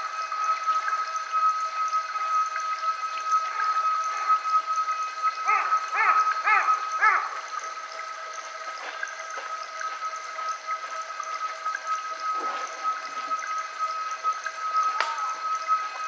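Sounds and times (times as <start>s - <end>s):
weaker lower tone: 0.0s - 16.0s
soft water-like hiss: 3.4s - 16.0s.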